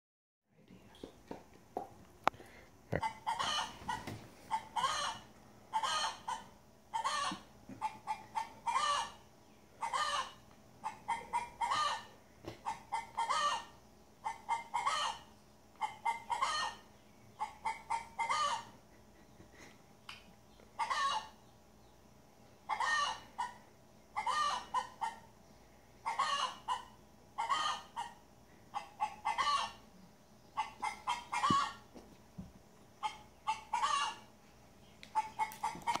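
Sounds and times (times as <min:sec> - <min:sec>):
chickens clucking through small speaker: 0:01.0 - 0:32.0, 0:32.9 - 0:34.4, 0:35.0 - 0:36.0.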